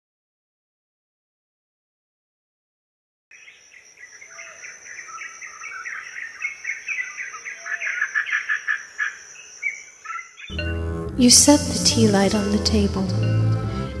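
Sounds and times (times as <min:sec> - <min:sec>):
birds chirping and calling: 0:03.3 - 0:10.8.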